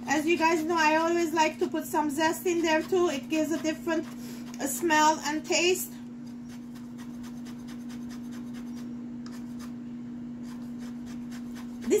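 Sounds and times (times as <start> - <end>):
zester rasping lemon peel: 2.2 - 4.8, 6.3 - 9.8, 10.4 - 12.0.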